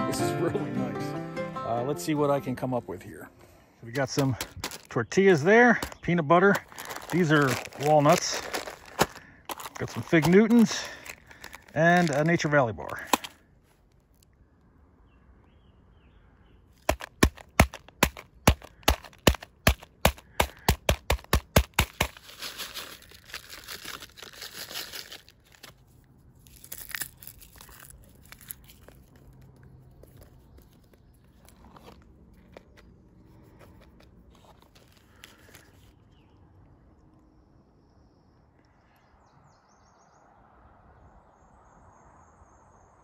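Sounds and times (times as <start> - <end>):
granola bar smashed in wrapper: 4.2 - 4.9, 6.6 - 13.4, 16.8 - 25.8, 26.4 - 29.5
wrapper crinkling and tearing: 4.2 - 5.0, 5.8 - 13.4, 16.8 - 32.8, 33.8 - 36.0.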